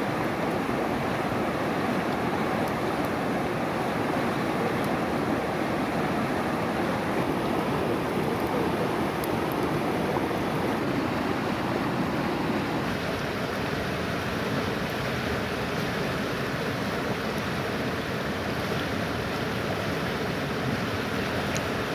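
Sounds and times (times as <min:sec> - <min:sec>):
river rushing over rocks: 0:00.0 - 0:21.9.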